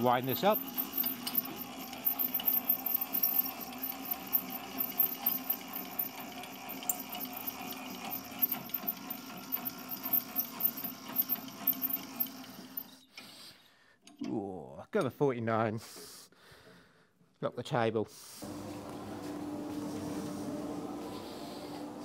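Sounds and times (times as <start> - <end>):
low hum: 18.4 - 22.0.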